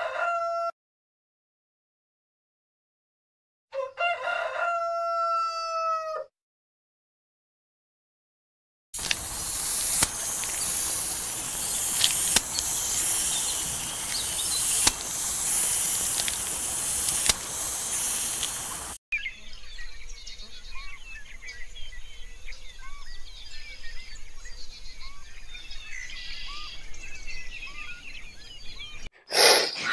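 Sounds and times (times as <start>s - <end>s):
sharp click: 9.0s - 15.1s, 16.0s - 17.5s
high-pitched outdoor hiss: 9.0s - 19.0s
small birds chirping: 9.0s - 29.9s.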